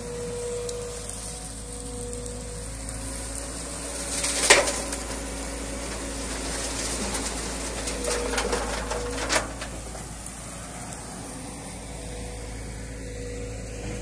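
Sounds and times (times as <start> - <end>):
excavator diesel engine: 0.0 - 14.0
stones crashing into truck bed: 4.1 - 10.2.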